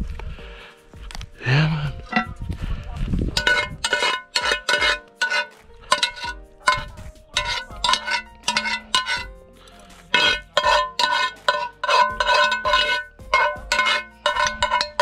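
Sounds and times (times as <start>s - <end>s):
metal spoon knocking in a pot: 3.4s - 9.3s, 10.1s - 15.0s.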